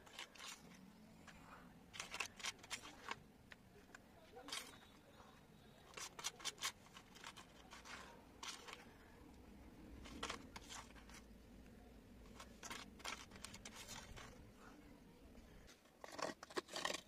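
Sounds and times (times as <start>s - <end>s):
metal spoon scraping paste: 4.3s - 11.4s, 15.8s - 17.0s.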